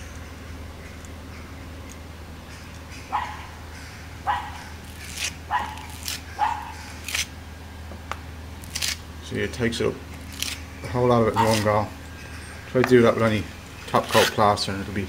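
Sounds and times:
metal scraper scraping plaster: 11.4 - 11.8, 14.0 - 14.4.

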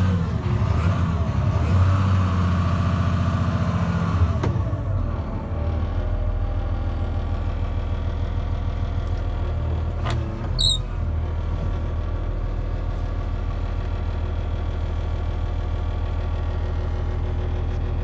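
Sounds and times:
diesel engine idling: 4.5 - 18.0.

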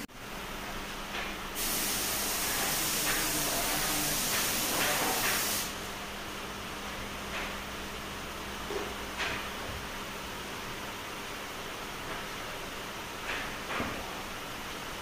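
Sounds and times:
compressed air hissing: 1.6 - 5.9.

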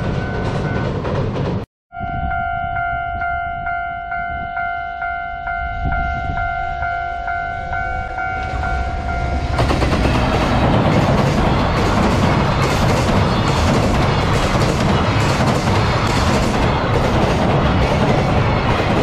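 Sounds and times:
approaching freight train: 0.0 - 19.0
level crossing warning bell: 1.9 - 9.9.

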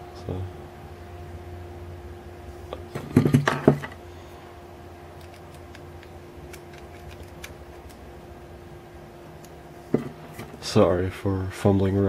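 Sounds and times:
steady low hum: 0.0 - 12.0
parts clattering: 2.9 - 4.0.

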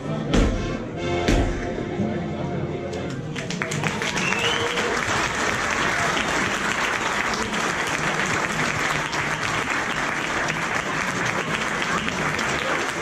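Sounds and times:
audience applause: 3.1 - 13.0.

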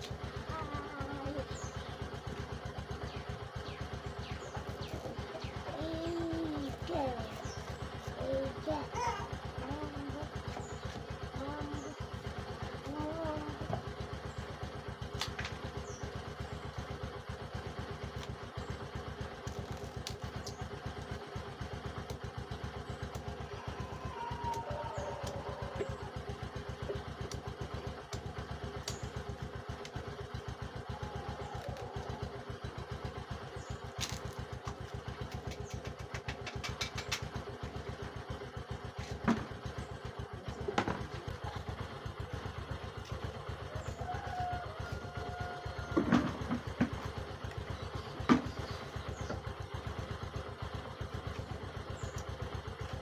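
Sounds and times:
engine droning: 0.0 - 53.0
sharp clicks: 34.0 - 37.5.

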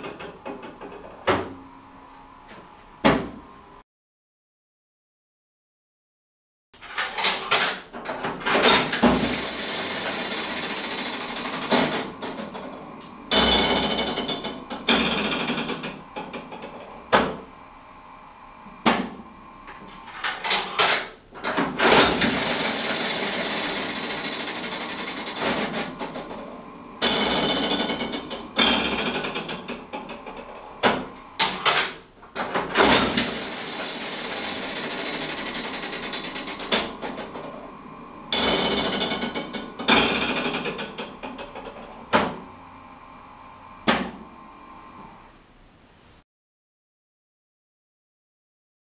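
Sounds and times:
slot machine reels rattling: 8.5 - 12.1, 21.8 - 26.0, 27.0 - 29.7, 32.8 - 37.0, 38.4 - 41.1.

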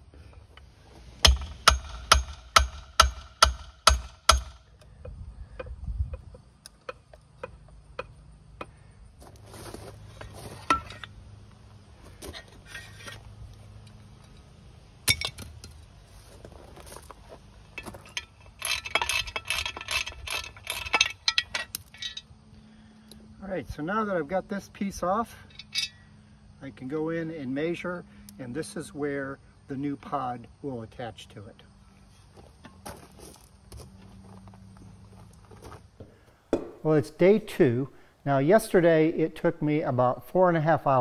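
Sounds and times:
hammer striking metal casing: 1.2 - 4.6, 36.5 - 36.8
hand tools clinking on metal: 10.0 - 11.2, 13.8 - 15.8, 17.7 - 22.3, 25.4 - 26.0.

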